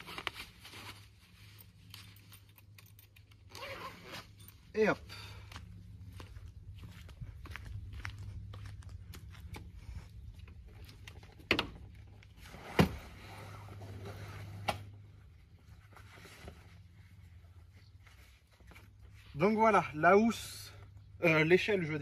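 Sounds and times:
footsteps on dirt: 4.2s - 12.1s.

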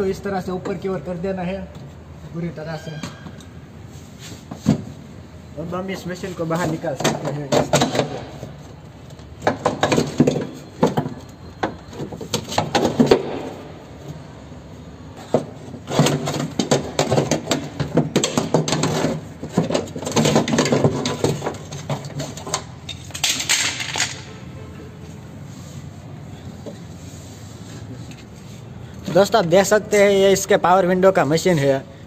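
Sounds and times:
metal clattering and scraping: 15.2s - 24.9s.

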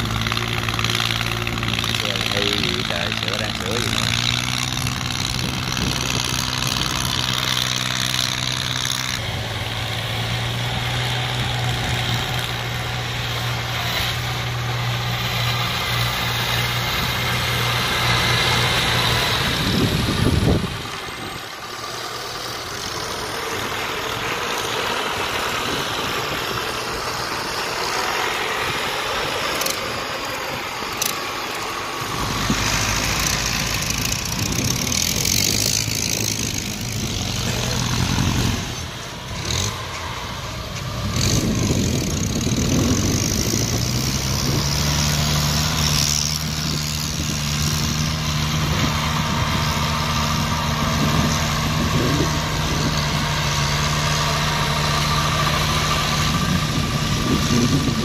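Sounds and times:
tracked carrier engine running: 0.0s - 58.0s.

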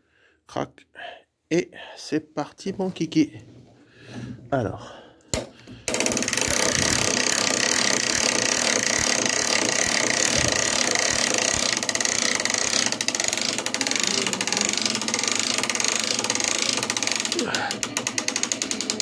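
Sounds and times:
ratchet winch clicking: 5.9s - 19.0s.

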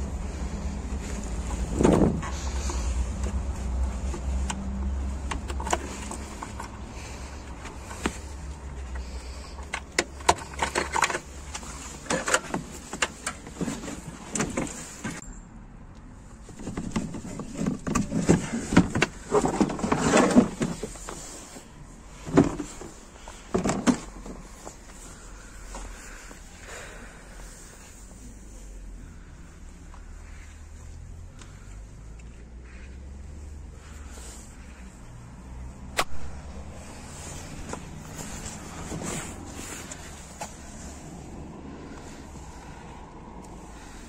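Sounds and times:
plastic scraping and rattling: 1.0s - 15.2s, 16.4s - 26.3s.

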